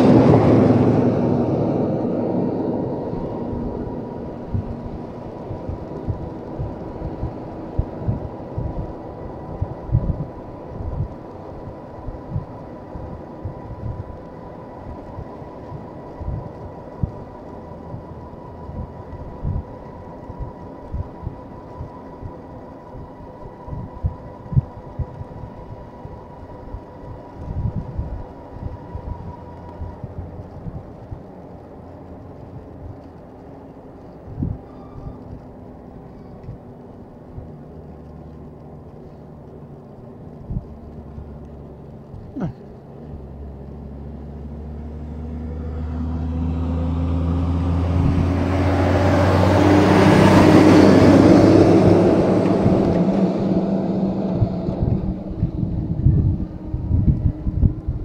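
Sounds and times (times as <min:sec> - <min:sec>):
faint steady whine: 0:00.0 - 0:58.0
traffic noise: 0:00.0 - 0:58.0
wind buffeting microphone: 0:00.0 - 0:58.0.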